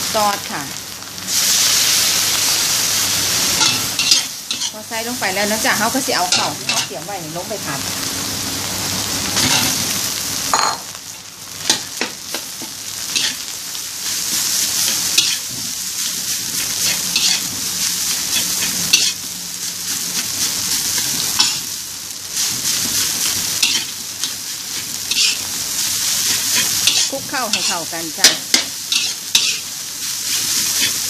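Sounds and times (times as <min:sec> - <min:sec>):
rice sizzling in a wok: 0:00.0 - 0:31.0
spatula scraping and knocking wok: 0:03.4 - 0:07.0, 0:09.3 - 0:09.9, 0:11.6 - 0:31.0.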